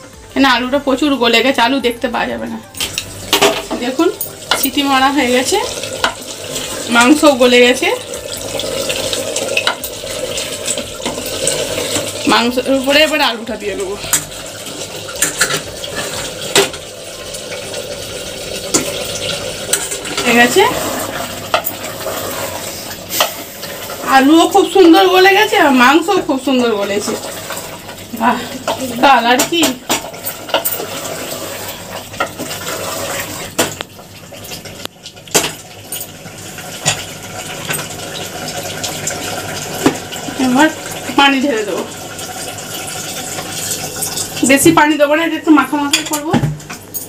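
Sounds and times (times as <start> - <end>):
metal spoon clinking on pots: 2.7 - 6.2, 19.7 - 20.7, 21.5 - 21.9, 28.6 - 31.0, 45.8 - 47.0
metal spatula scraping pot: 15.1 - 16.5, 18.7 - 25.6.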